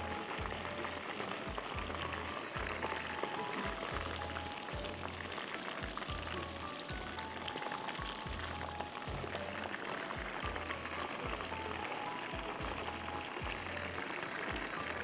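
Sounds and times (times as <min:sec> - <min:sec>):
background music with low beat: 0:00.0 - 0:15.0
chicken deep-frying in hot oil: 0:00.0 - 0:15.0.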